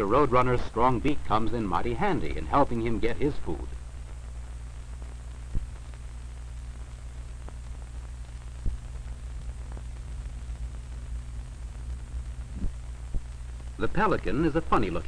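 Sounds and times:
film soundtrack hiss and hum: 0:00.0 - 0:15.0
clicks and pops: 0:05.5 - 0:05.9, 0:12.4 - 0:13.4.

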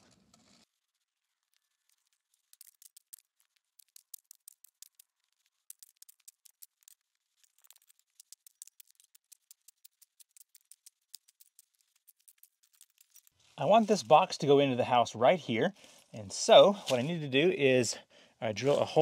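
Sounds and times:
stones clicking: 0:01.4 - 0:13.4.

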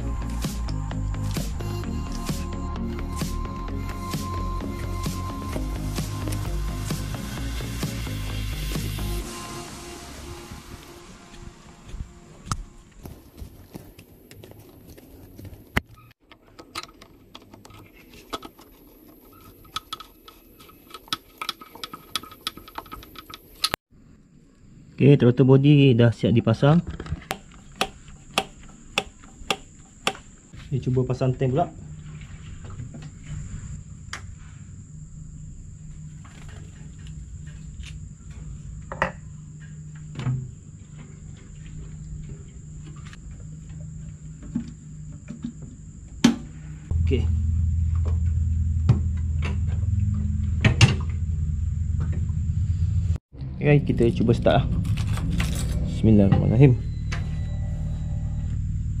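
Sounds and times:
high-pitched whine: 0:00.0 - 0:13.8, 0:31.4 - 0:59.0
low hum: 0:00.0 - 0:15.8, 0:31.7 - 0:59.0.

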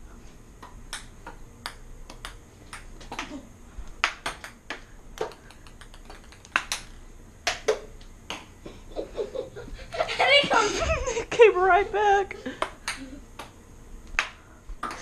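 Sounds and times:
ping pong ball clicks: 0:00.6 - 0:03.3, 0:04.0 - 0:08.5, 0:12.6 - 0:13.6.

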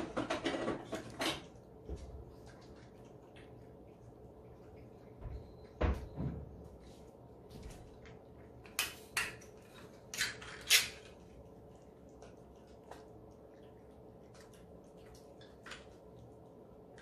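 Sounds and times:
cats eating wet food: 0:00.0 - 0:17.0.

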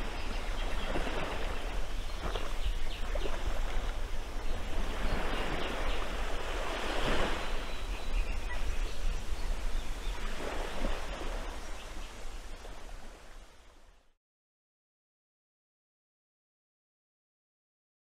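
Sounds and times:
ocean waves washing: 0:00.0 - 0:13.7
wind rumbling on microphone: 0:00.0 - 0:14.0.

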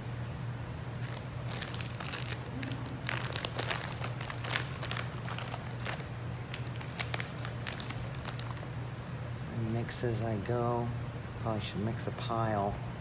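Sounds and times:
plastic bags crinkling: 0:00.9 - 0:08.6.

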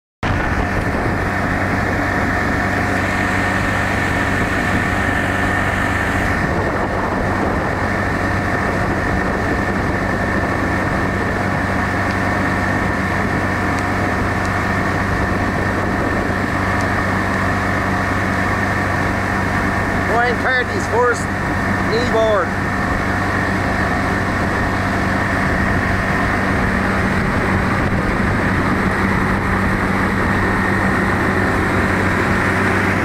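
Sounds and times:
boat wake churning: 0:00.2 - 0:33.0
motorboat engine running: 0:00.2 - 0:33.0.

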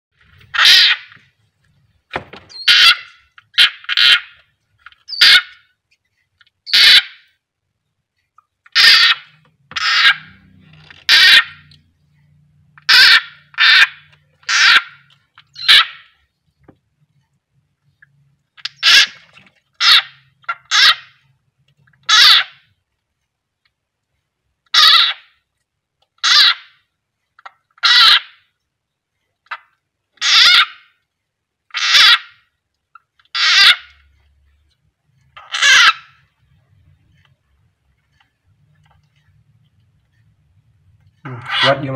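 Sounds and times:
frog screaming: 0:00.5 - 0:01.2, 0:08.7 - 0:10.4, 0:11.0 - 0:11.6, 0:12.8 - 0:15.0, 0:27.8 - 0:28.4, 0:30.2 - 0:30.9, 0:31.7 - 0:32.4, 0:33.3 - 0:33.9, 0:35.4 - 0:36.1.

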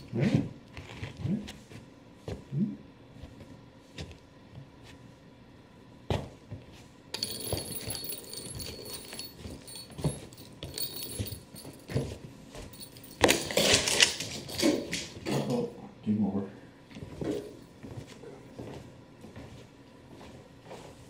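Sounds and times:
toy ball jingling on wooden floor: 0:07.2 - 0:15.2.

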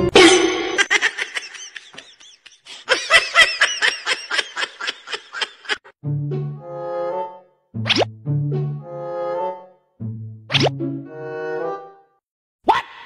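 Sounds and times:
high-pitched rapid giggling: 0:00.8 - 0:05.9.

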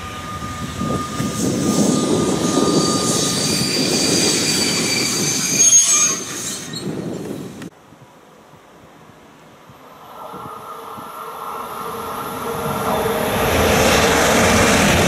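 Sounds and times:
wagon wheels squealing on rails: 0:00.0 - 0:07.6.

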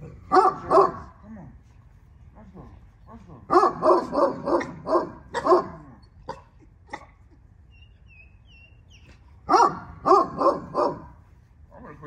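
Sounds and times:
dog barking: 0:00.3 - 0:01.2, 0:03.5 - 0:07.0, 0:09.5 - 0:11.2.

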